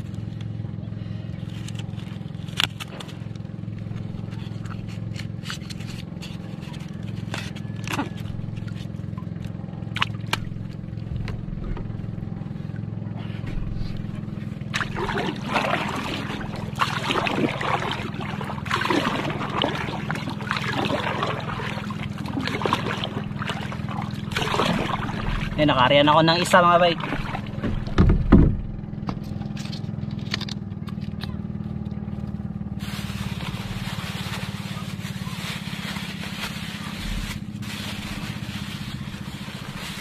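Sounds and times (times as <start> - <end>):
steady low hum: 0.0 - 40.0
paddle splashing in water: 14.0 - 29.3.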